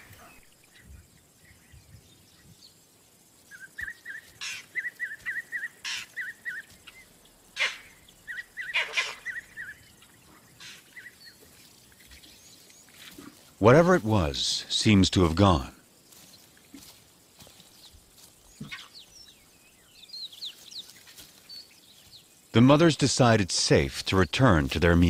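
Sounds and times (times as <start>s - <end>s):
monkey harsh barks: 7.6s - 8.0s, 8.6s - 9.5s.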